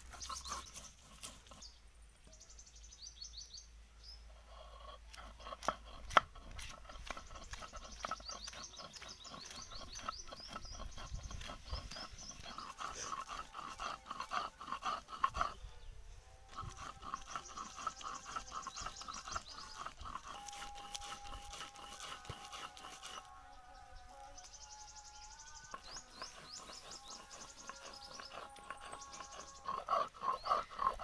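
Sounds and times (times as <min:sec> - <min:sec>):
clicks and scrapes: 0:05.1 - 0:13.3.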